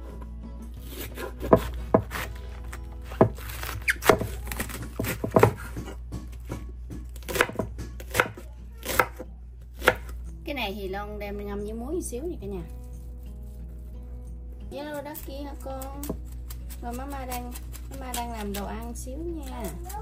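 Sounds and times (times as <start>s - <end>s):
knife chopping on cutting board: 0.9s - 2.4s, 3.0s - 9.2s, 9.8s - 10.2s.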